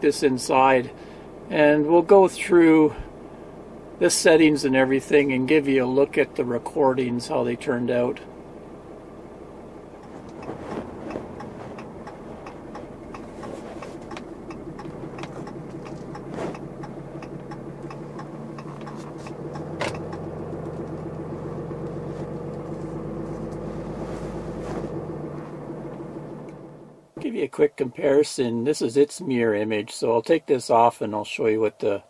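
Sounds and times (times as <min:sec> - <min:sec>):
road noise: 0:00.0 - 0:32.0
truck engine hum: 0:00.0 - 0:32.0
deep low rumble: 0:09.7 - 0:27.2.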